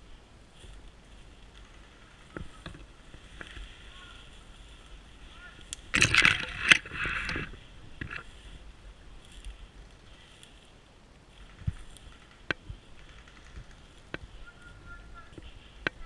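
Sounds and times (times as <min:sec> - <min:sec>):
branches brushing and scraping: 0:00.0 - 0:16.0
faint ticks: 0:00.6 - 0:05.0, 0:11.4 - 0:16.0.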